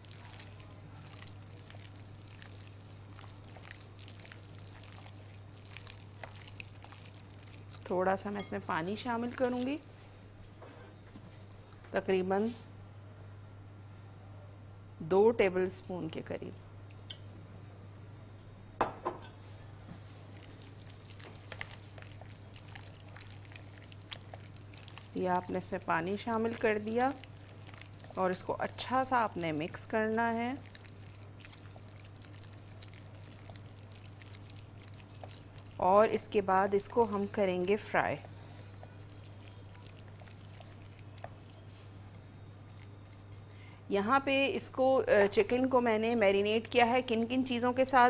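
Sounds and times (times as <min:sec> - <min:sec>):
wet squelching: 0:00.0 - 0:07.9, 0:20.3 - 0:43.6
soft squishing of mixing meat: 0:00.0 - 0:10.2, 0:19.4 - 0:48.0
low steady hum: 0:00.0 - 0:48.0.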